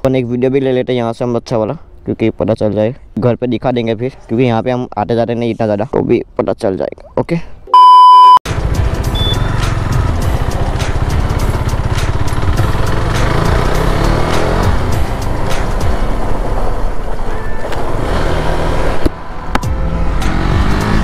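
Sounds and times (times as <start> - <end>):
motorcycle engine accelerating: 8.5 - 21.0.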